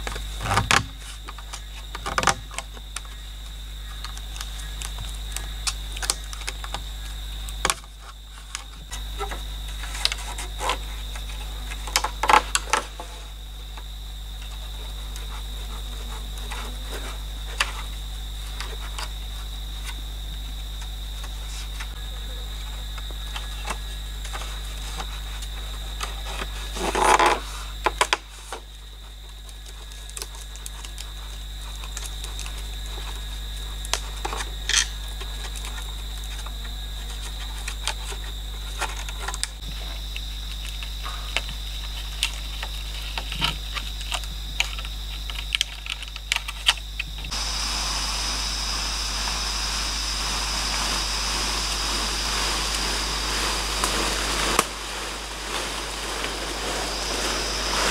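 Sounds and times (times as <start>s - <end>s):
high insect drone: 0.0s - 57.9s.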